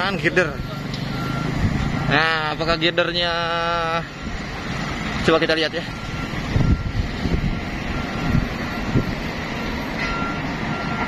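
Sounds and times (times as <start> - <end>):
reversing beeper: 0.0 - 11.0
vehicles and machinery rumbling: 0.0 - 11.0
wind on microphone: 6.2 - 9.2.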